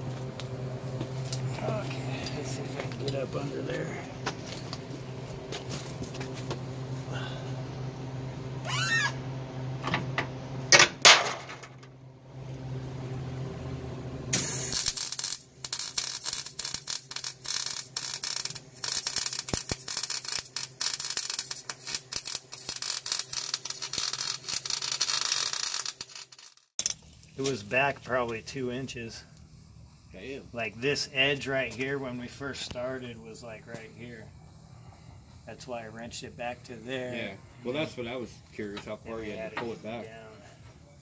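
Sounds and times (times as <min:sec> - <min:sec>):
low steady hum: 0:00.0 - 0:14.6, 0:26.8 - 0:41.0
welder crackling sizzle: 0:14.3 - 0:29.2.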